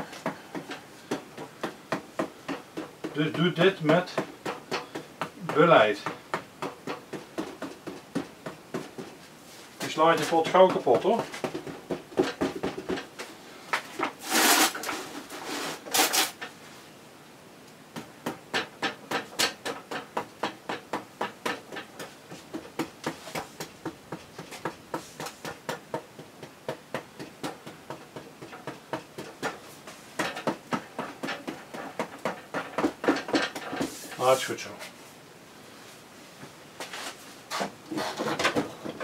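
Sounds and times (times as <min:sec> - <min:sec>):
scraping sounds: 0:13.2 - 0:16.8, 0:35.8 - 0:39.0.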